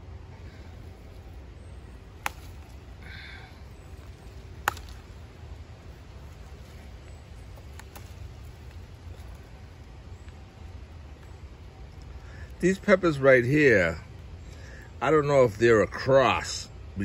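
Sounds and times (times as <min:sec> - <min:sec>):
low steady rumble: 0:00.0 - 0:17.0
pepper stems snapping: 0:02.1 - 0:03.4, 0:04.0 - 0:05.4, 0:07.5 - 0:10.5.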